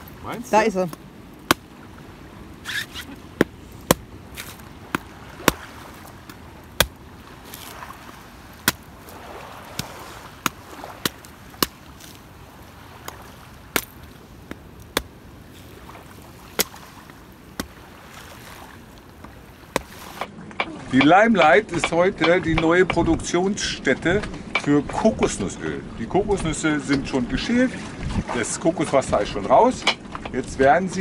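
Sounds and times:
chopping at a coconut: 0:00.9 - 0:01.7, 0:03.4 - 0:05.7, 0:08.6 - 0:08.9, 0:09.7 - 0:12.2, 0:16.5 - 0:16.8, 0:19.7 - 0:22.7.

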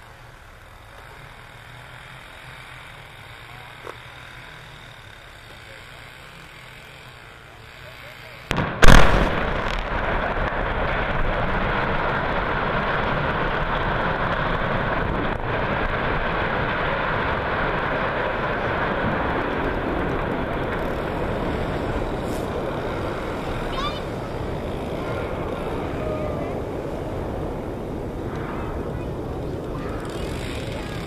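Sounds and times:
rumble of falling steel and debris: 0:08.5 - 0:23.3.

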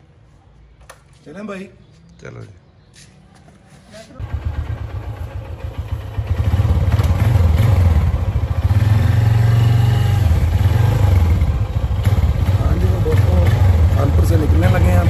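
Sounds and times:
motorcycle engine pulling away: 0:04.2 - 0:15.0.

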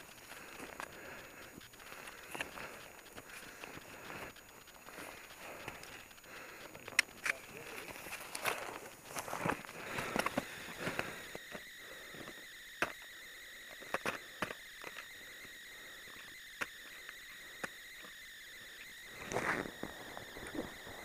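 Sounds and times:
faint steady high tone: 0:00.0 - 0:21.0
ice axes and crampons crunching: 0:00.1 - 0:13.0, 0:19.1 - 0:21.0.

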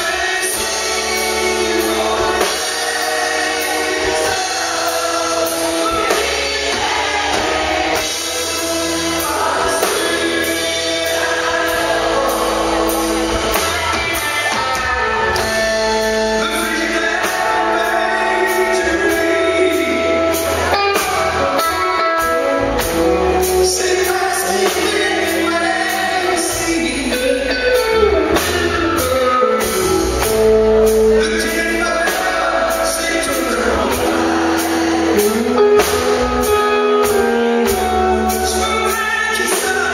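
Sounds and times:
electric bass: 0:00.0 - 0:39.9
man singing into microphone: 0:09.0 - 0:12.7, 0:13.8 - 0:21.7, 0:23.3 - 0:30.0, 0:30.9 - 0:39.9.

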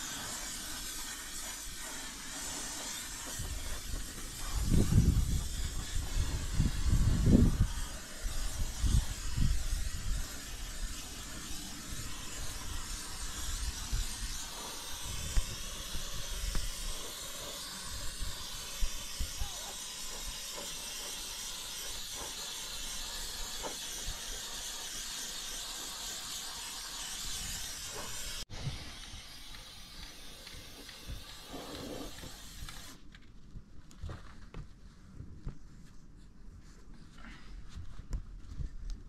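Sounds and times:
spray can hissing: 0:00.0 - 0:33.0.

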